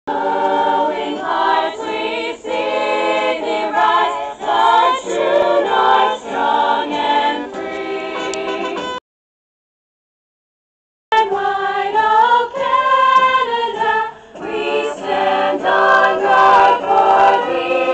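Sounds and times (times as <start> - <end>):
choir singing: 0.1 - 9.0, 11.2 - 17.9.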